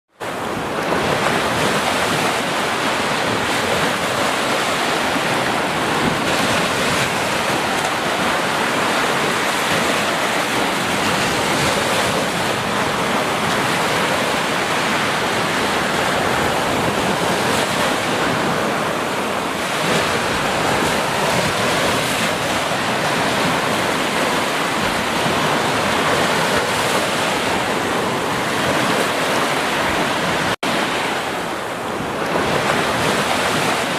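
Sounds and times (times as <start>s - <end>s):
small waves breaking on beach: 0.2s - 33.9s.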